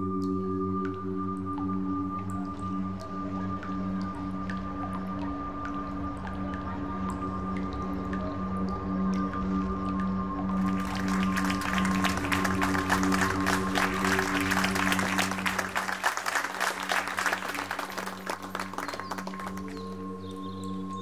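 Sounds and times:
droning background music: 0:00.0 - 0:21.0
applause: 0:10.6 - 0:20.1.

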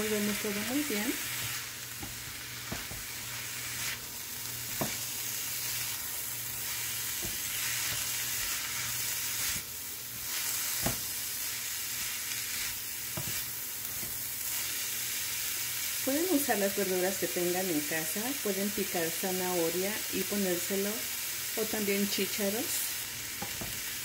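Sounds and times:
vegetables sizzling in a frying pan: 0:00.0 - 0:24.0
spatula knocking and scraping pan: 0:01.4 - 0:03.2, 0:04.7 - 0:05.1.

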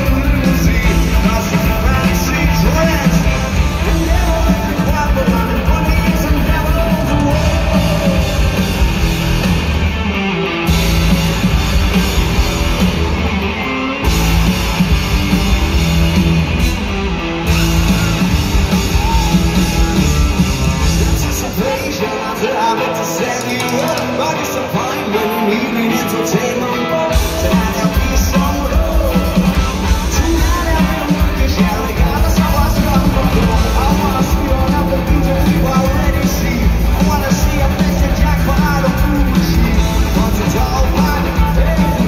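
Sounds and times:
man singing lead vocal: 0:00.0 - 0:09.2, 0:18.9 - 0:42.0
drums: 0:00.0 - 0:42.0
electric guitar: 0:00.0 - 0:42.0
live rock band playing loudly: 0:00.0 - 0:42.0.

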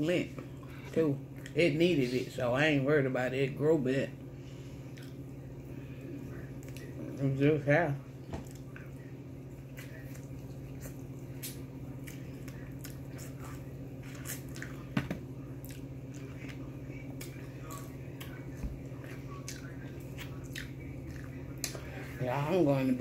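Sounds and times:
steady low hum: 0:00.0 - 0:23.0
wet chewing and lip smacks: 0:04.9 - 0:05.2, 0:06.6 - 0:07.0, 0:09.7 - 0:14.9, 0:15.6 - 0:21.8.

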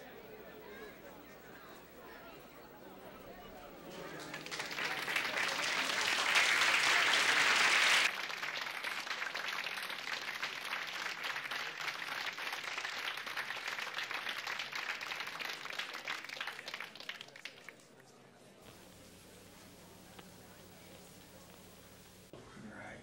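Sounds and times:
audience applauding: 0:03.9 - 0:17.8.

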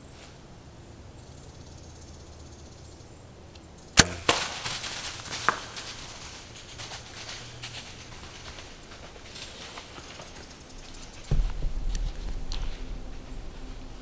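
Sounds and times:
bow string crack: 0:04.0 - 0:05.8
arrow hitting deer: 0:04.0 - 0:06.2
deer crashing through brush: 0:04.0 - 0:14.0.

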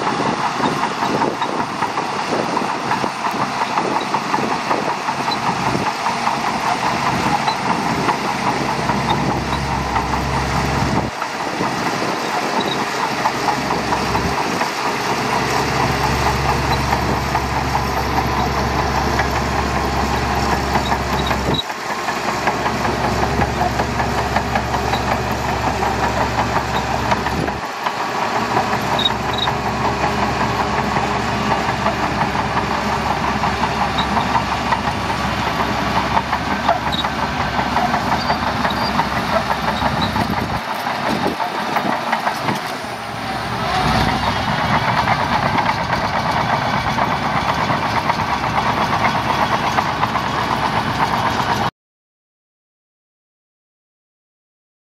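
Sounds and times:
bulldozer diesel engine running: 0:00.0 - 0:51.7.

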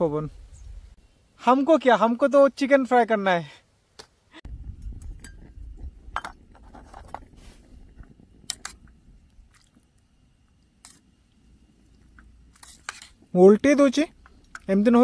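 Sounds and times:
wind rumble on microphone: 0:00.2 - 0:01.0, 0:04.5 - 0:09.9.

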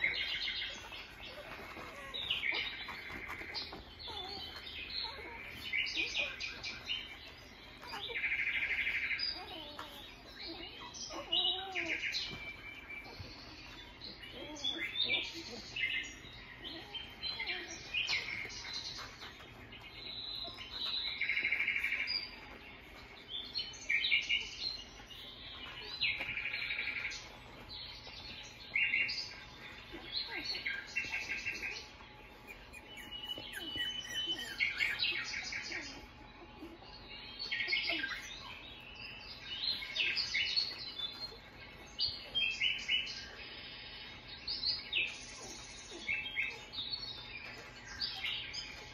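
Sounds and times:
puppies squeaking and whining: 0:00.0 - 0:48.9.

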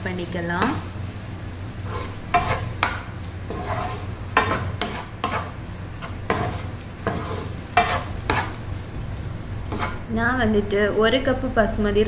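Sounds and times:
vegetables sizzling in oil: 0:00.0 - 0:12.0
spatula scraping frying pan: 0:01.7 - 0:10.9.

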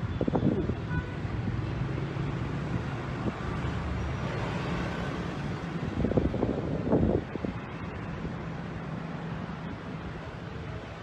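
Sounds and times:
street traffic rumble: 0:00.0 - 0:11.0
wind buffeting microphone: 0:05.6 - 0:08.4.

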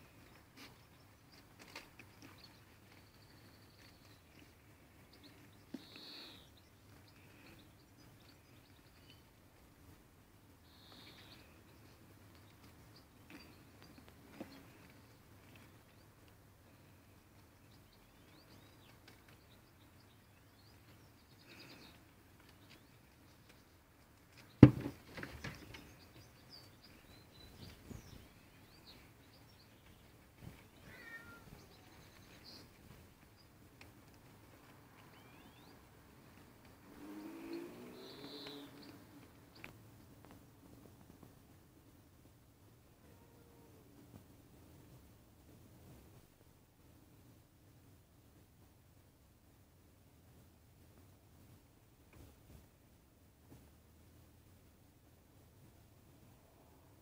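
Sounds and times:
birds chirping: 0:00.0 - 0:09.6, 0:10.6 - 0:40.4
sharp knock: 0:24.6 - 0:24.9.

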